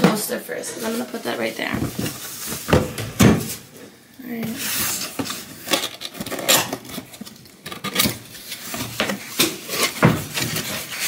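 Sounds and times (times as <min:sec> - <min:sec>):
cardboard scraping and rustling: 0:04.4 - 0:11.0.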